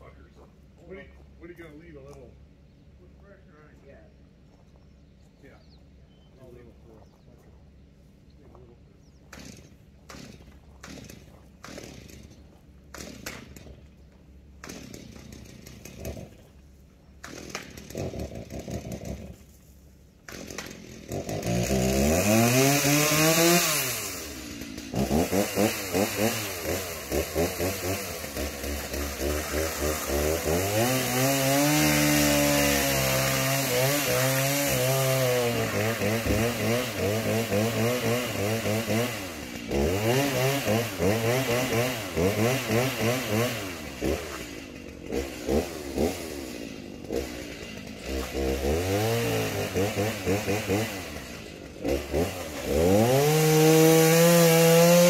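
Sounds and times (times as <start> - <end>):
chainsaw cutting tree trunk: 9.2 - 55.0.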